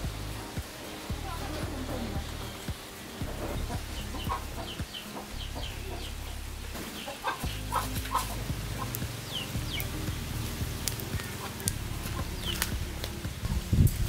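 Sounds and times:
low rumble: 0.0 - 6.8, 7.4 - 14.0
high chirps: 0.0 - 14.0
chickens clucking: 0.6 - 10.2
sharp clicks: 6.8 - 14.0.

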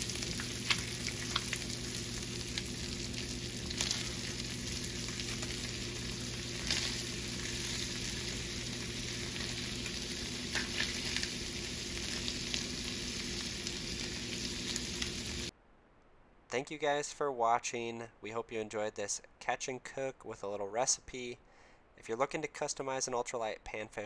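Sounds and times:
food sizzling in butter: 0.0 - 15.5
crackles and clicks: 0.0 - 16.6.

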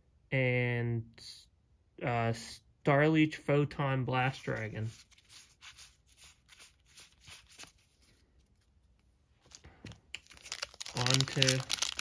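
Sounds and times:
trading cards rustling and clicking: 4.4 - 12.0.

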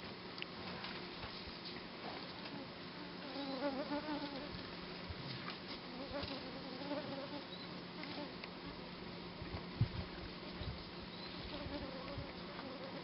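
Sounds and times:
flying insect buzzing: 2.5 - 4.6, 5.9 - 8.4, 11.4 - 13.0.

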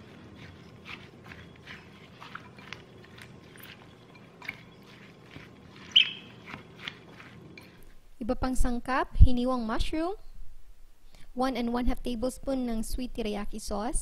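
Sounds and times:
spoon scraping and squelching salsa: 0.0 - 8.1.

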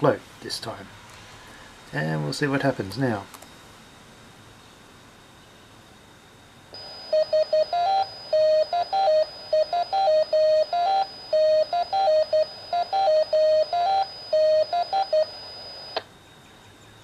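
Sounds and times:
radio hiss and high whine: 0.0 - 17.0
morse code tones: 6.8 - 16.0.

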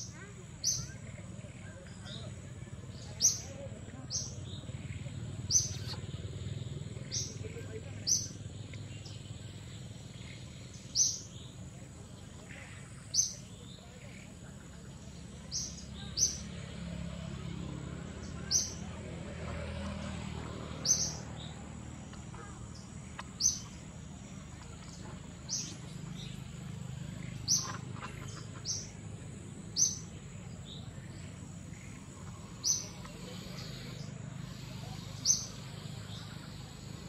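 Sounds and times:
bird chirping: 0.0 - 16.5, 18.2 - 19.0, 20.7 - 37.0
insect drone: 28.7 - 37.0.

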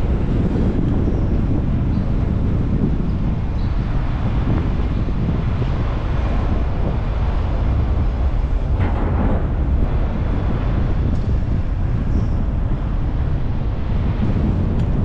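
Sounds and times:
car road and wind rumble: 0.0 - 15.0.

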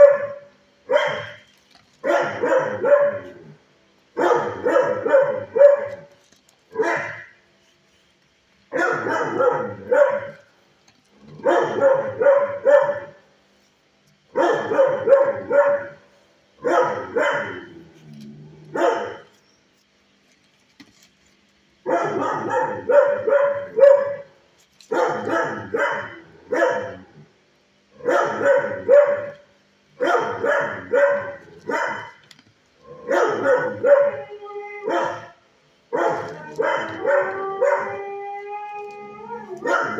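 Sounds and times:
dog barking: 0.0 - 1.4, 2.0 - 3.4, 4.2 - 6.1, 6.8 - 7.3, 8.7 - 10.4, 11.4 - 13.2, 14.3 - 16.0, 16.6 - 17.7, 18.8 - 19.3, 21.9 - 24.3, 24.9 - 27.0, 28.0 - 29.4, 30.0 - 32.2, 33.0 - 34.2, 34.9 - 37.9, 39.6 - 39.9.

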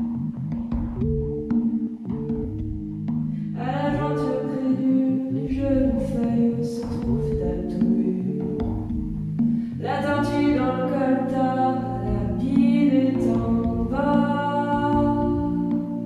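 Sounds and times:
woman singing into a microphone: 3.6 - 8.7, 9.8 - 16.0.

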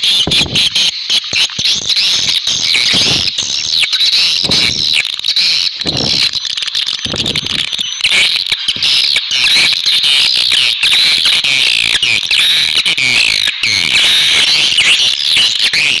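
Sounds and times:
swiftlets twittering: 0.0 - 10.6.

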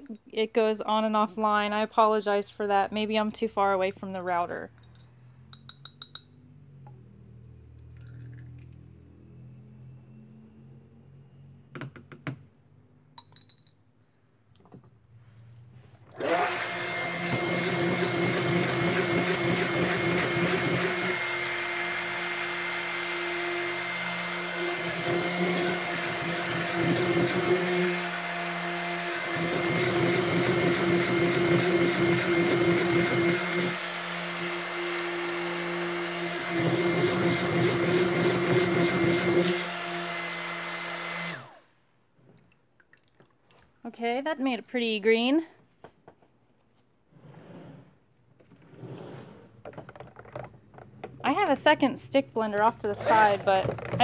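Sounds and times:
stick blender motor running: 16.1 - 41.6, 52.8 - 54.0.

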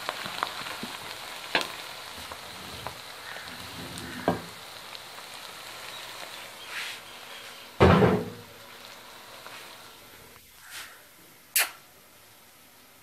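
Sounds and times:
onions sizzling in oil: 0.0 - 13.0
wooden spoon knocking on pan: 4.1 - 4.5, 7.8 - 8.4.

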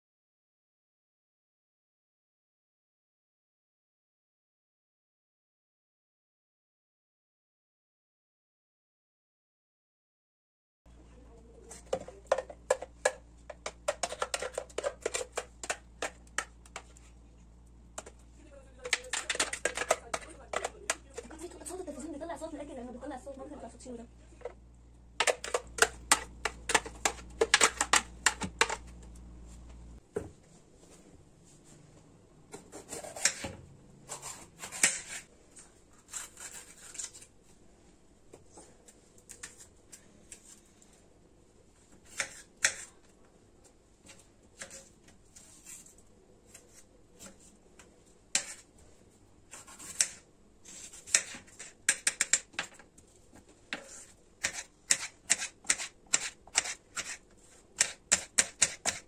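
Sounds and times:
knife chopping on wooden board: 57.8 - 59.0.

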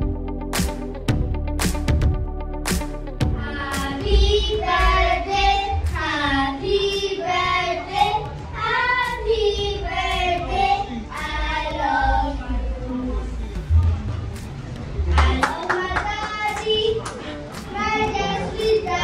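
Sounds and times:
children singing together: 3.4 - 12.6, 17.7 - 19.0.

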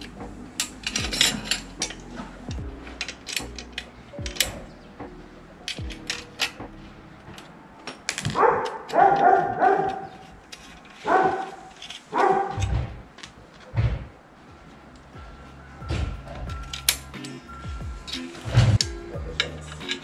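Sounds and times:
small parts clicking and tapping: 0.0 - 13.7, 16.4 - 20.0
dog barking: 8.3 - 10.2, 11.0 - 12.9.

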